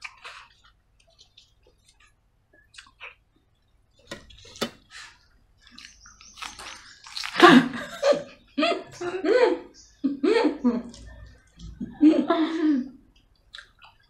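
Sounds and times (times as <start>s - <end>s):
wet squelching of hand eating rice: 4.2s - 7.8s.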